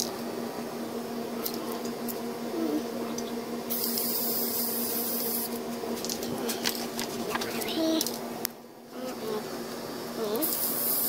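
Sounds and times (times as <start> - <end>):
steady low hum: 0.0 - 11.0
spray paint can hissing: 3.7 - 5.6, 10.4 - 11.0.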